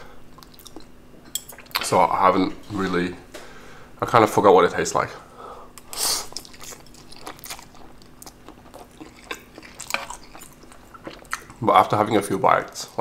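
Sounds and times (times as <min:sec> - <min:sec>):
soft wet chewing: 0:00.3 - 0:01.8, 0:05.8 - 0:12.0
noodles slurped: 0:05.8 - 0:11.6.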